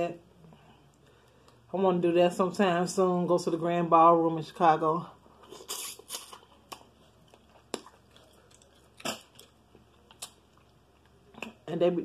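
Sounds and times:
person chewing food: 5.4s - 11.5s.

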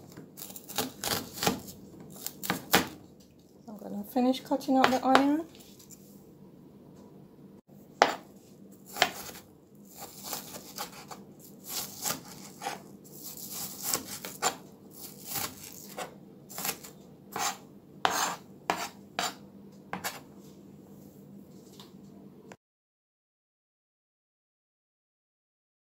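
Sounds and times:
knife chopping on plastic board: 0.1s - 3.0s, 4.8s - 5.4s, 8.0s - 8.2s, 8.9s - 9.4s, 10.0s - 12.8s, 13.4s - 14.6s, 15.2s - 20.2s.

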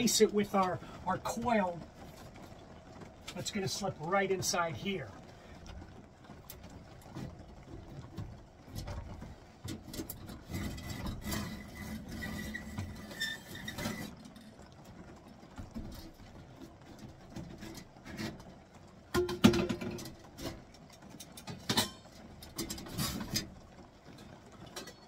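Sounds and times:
thin steady squeak: 9.9s - 14.6s.

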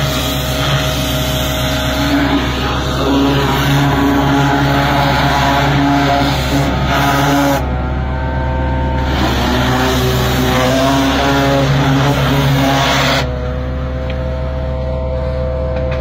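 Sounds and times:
machinery hum: 0.0s - 16.0s.

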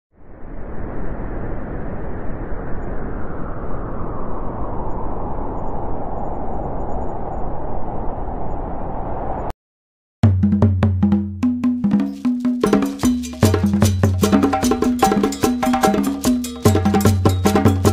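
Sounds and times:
storm wind through pine trees: 0.2s - 9.5s.

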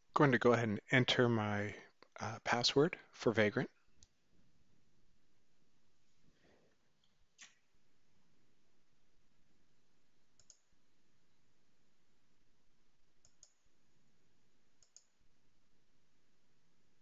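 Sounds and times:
soft double clicks: 10.4s - 10.6s, 13.2s - 13.6s, 14.8s - 15.1s.

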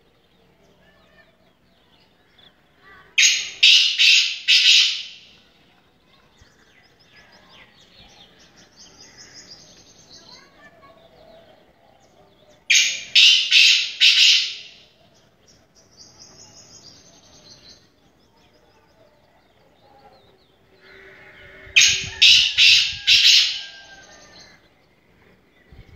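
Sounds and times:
francolin calling loudly: 3.2s - 5.4s, 12.7s - 14.9s, 20.9s - 24.6s.

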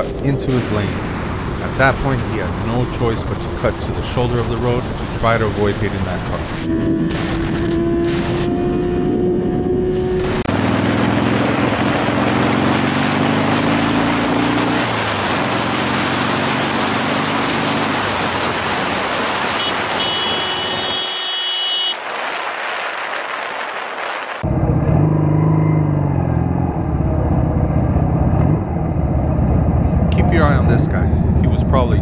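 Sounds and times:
motorcycle engine accelerating: 6.6s - 21.9s, 24.3s - 32.0s.

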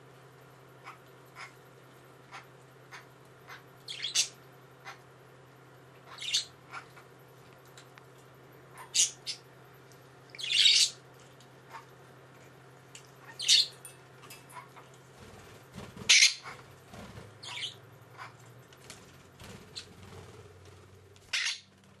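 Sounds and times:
budgerigar chirps and squawks: 2.3s - 5.0s, 6.0s - 7.0s, 8.7s - 9.4s, 10.4s - 11.0s, 13.2s - 13.7s, 16.1s - 16.6s, 17.4s - 18.4s, 21.3s - 21.7s.

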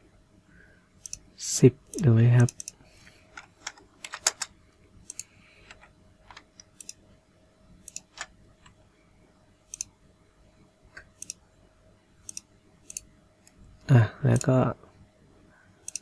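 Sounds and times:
faint hum: 0.0s - 16.0s
mouse and keyboard clicks: 9.7s - 9.9s.

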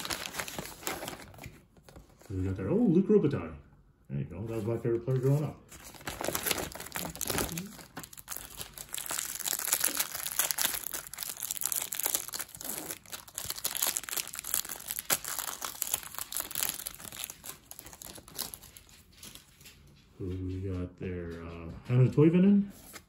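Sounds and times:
plastic wrapper crinkling: 0.0s - 2.3s, 4.6s - 20.0s.

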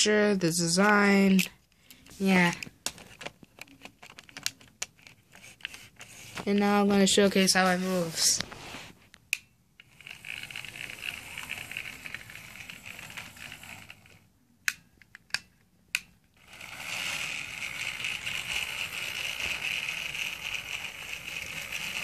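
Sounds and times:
model train motor whirring: 9.8s - 14.2s, 16.4s - 22.0s.

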